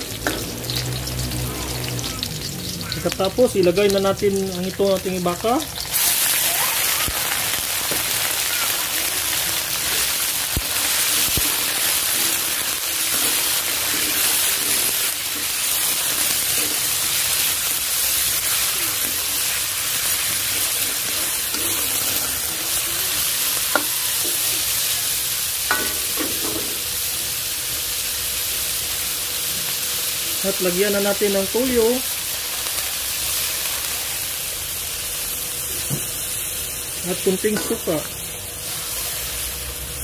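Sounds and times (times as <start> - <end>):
beef sizzling in hot oil: 0.0 - 40.0
spatula scraping a pan: 9.7 - 24.8.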